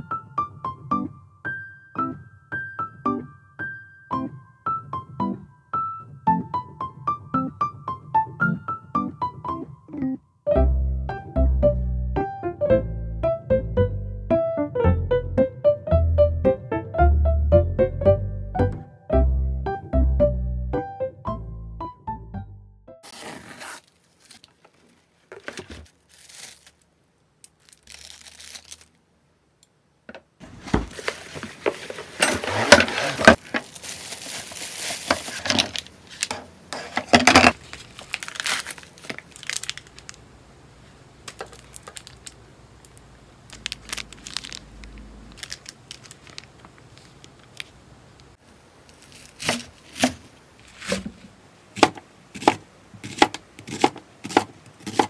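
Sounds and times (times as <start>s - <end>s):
packaging rustling: 23.0s - 26.9s, 27.5s - 29.0s, 30.4s - 40.2s, 41.2s - 47.8s, 48.9s - 51.3s
tape and plastic tearing and crinkling: 23.0s - 29.0s, 30.5s - 40.2s, 41.2s - 47.8s, 48.8s - 51.2s
knife chopping onion on wooden board: 51.8s - 55.0s.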